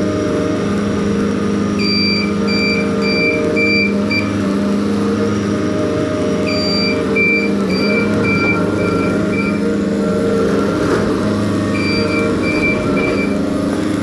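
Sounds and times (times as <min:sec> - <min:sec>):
diesel engines running: 0:00.0 - 0:14.0
back-up alarm beeping: 0:01.8 - 0:04.4, 0:06.4 - 0:13.5.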